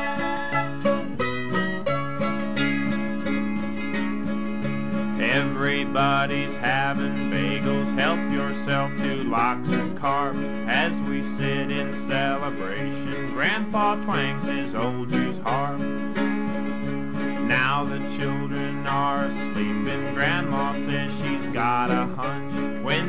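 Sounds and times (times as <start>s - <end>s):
sliding wavering melody: 0.0s - 4.8s
plucked guitar chords: 0.0s - 23.0s.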